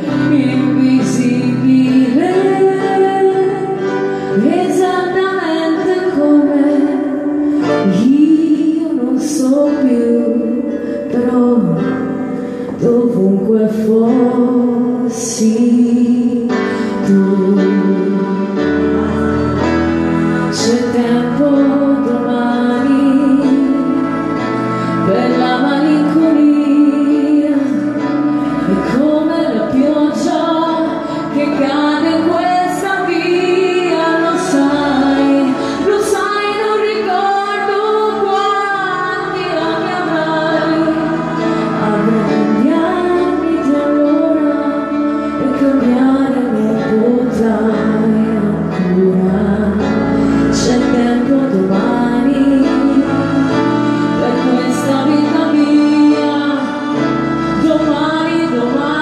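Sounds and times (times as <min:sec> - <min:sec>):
backing music with chords and bass: 0:00.0 - 0:59.0
woman singing wordlessly: 0:12.8 - 0:18.6, 0:28.7 - 0:59.0.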